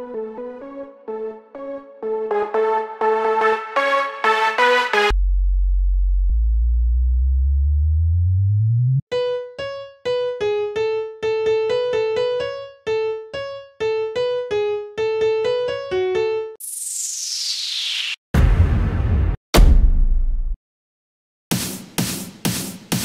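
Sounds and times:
deep bass note sliding upward: 5.1 - 9.0
piano melody of clipped notes: 9.1 - 16.6.

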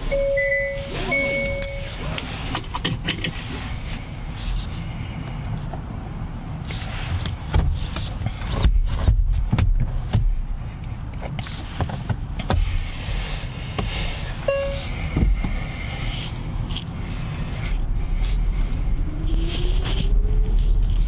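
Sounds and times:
short beep: 0.0 - 2.0, 14.5 - 14.9
car cabin low rumble: 0.0 - 21.0.

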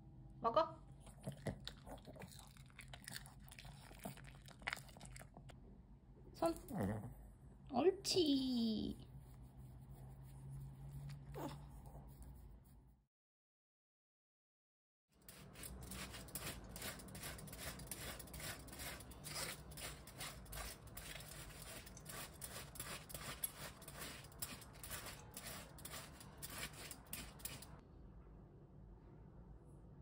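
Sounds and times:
cabbage shredding strokes: 15.3 - 27.8.

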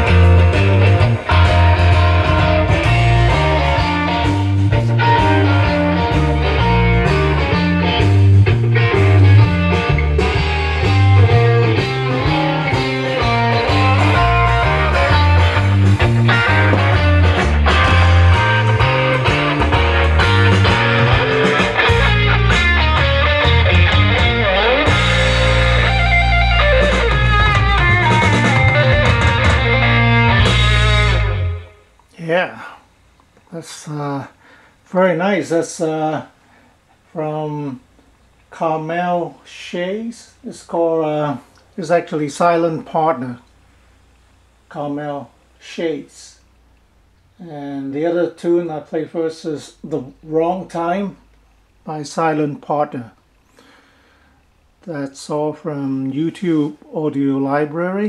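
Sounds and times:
guitar-led rock instrumental: 0.0 - 32.0.

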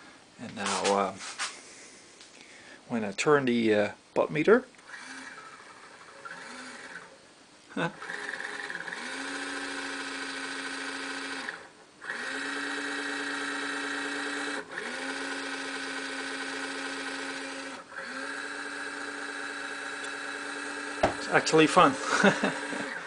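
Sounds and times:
motor and gears humming and whining: 4.8 - 23.0.

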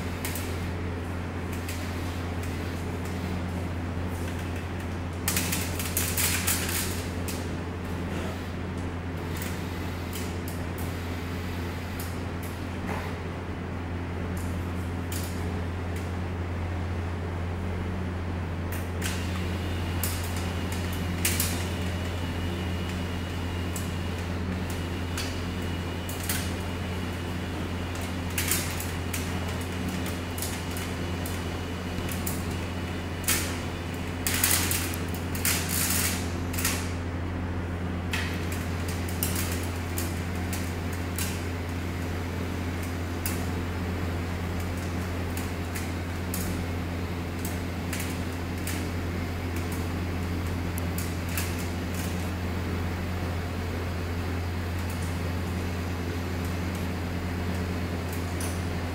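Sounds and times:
steady low hum: 0.0 - 58.9.

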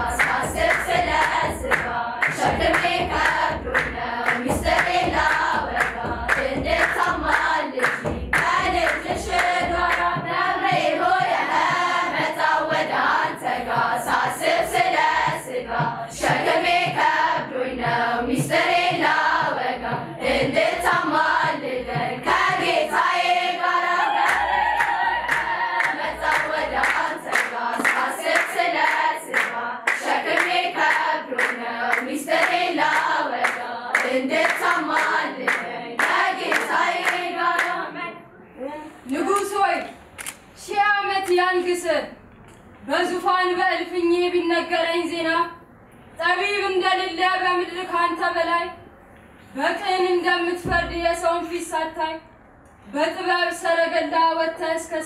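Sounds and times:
girls' choir singing a hymn: 0.0 - 39.8, 49.6 - 52.2, 52.9 - 55.0
hands clapping: 0.1 - 12.4, 24.2 - 37.8.

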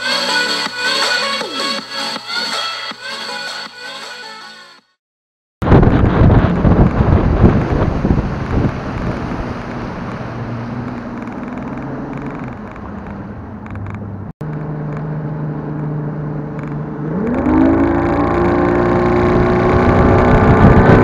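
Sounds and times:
outboard motor running: 14.4 - 21.0.

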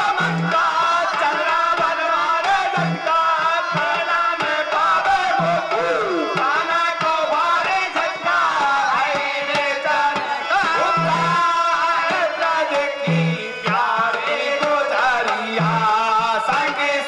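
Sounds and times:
hand drum beat: 5.2 - 6.7, 8.2 - 11.6.

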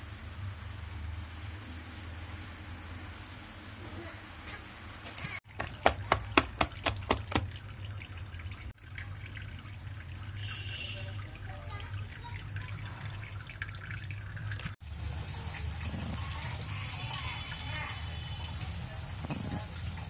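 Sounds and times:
hand slapping wet batter: 5.5 - 7.5.

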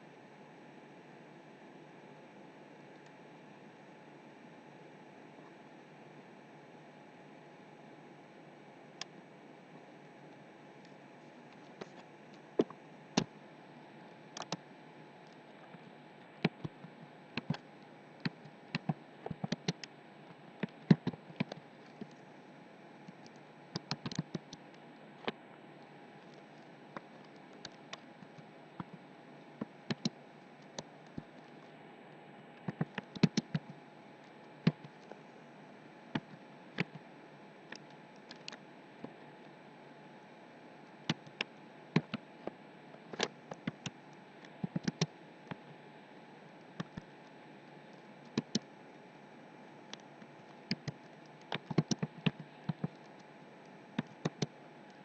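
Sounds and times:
keyboard keys clicking: 18.2 - 19.9, 44.6 - 45.1, 50.7 - 52.9.

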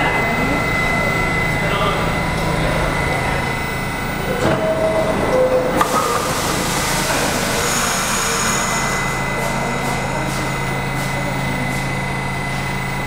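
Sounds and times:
train hum with high whine: 0.0 - 13.0
two short descending tones: 1.9 - 10.3.

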